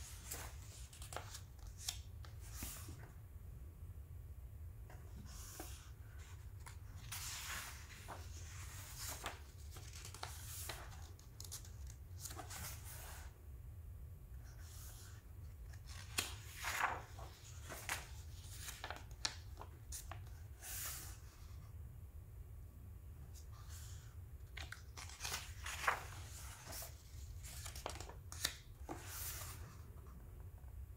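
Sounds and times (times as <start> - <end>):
book pages turning: 0.0 - 3.1, 4.9 - 13.3, 14.6 - 21.2, 23.5 - 30.1
paper crackles: 6.6 - 13.2, 15.7 - 20.3, 24.6 - 29.6.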